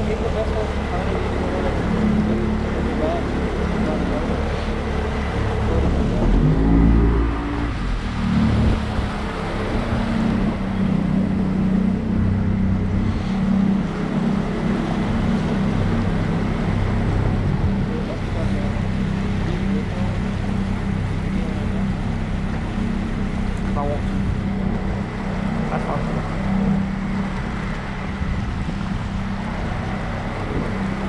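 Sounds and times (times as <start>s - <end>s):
boat motor running: 0.0s - 31.0s.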